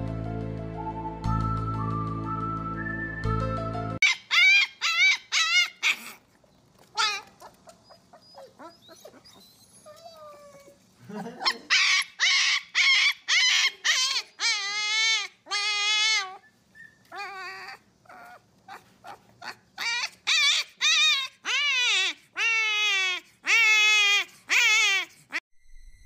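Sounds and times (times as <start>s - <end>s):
puppy howling and yelping: 4.0s - 25.4s.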